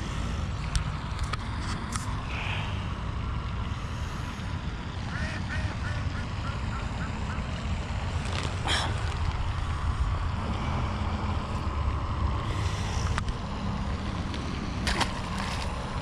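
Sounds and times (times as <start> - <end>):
low wind rumble on microphone: 0.0 - 16.0
duck quacking: 5.1 - 7.5.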